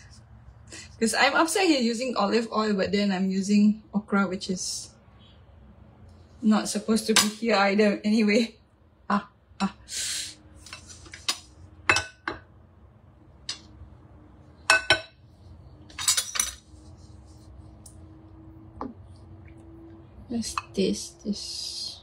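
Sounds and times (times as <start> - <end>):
faint steady hum: 0.0 - 22.0
utensils clinking on dishes: 10.7 - 12.4, 14.7 - 15.2, 15.9 - 16.8
utensil scraping: 15.3 - 18.1.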